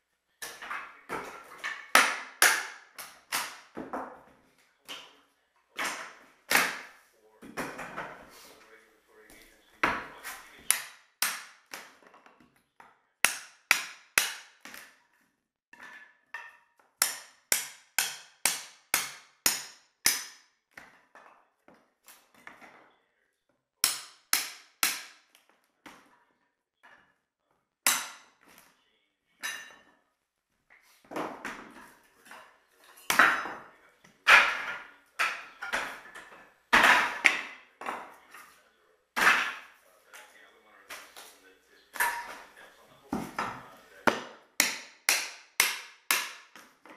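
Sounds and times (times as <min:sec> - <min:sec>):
boards clattering onto floor: 0:00.4 - 0:05.1, 0:31.0 - 0:38.5, 0:39.2 - 0:39.8.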